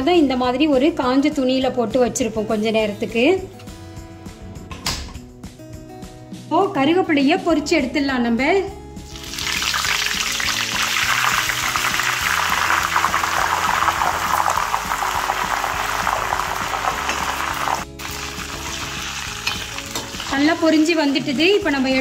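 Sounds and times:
leaves sizzling in hot oil: 0:09.1 - 0:22.0.

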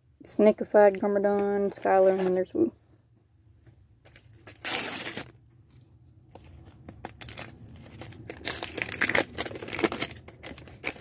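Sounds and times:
plastic wrapping crinkling: 0:04.0 - 0:11.0.

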